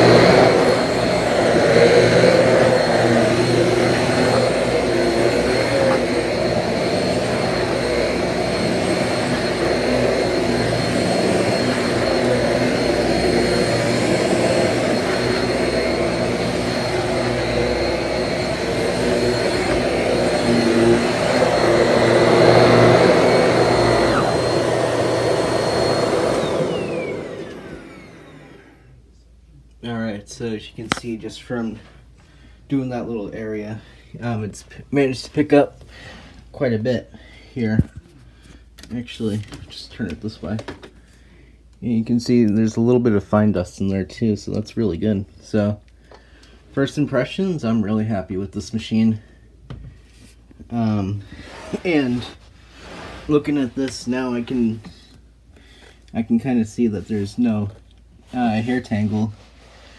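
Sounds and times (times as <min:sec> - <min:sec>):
vacuum cleaner humming and whining: 0:00.0 - 0:29.0.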